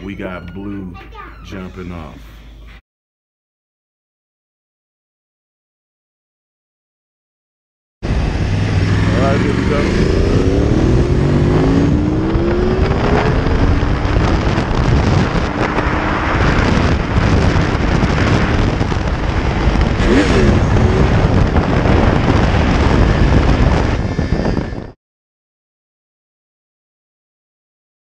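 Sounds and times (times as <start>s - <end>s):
motorcycle engine accelerating: 8.0s - 25.0s
wind noise rushing: 8.0s - 25.0s.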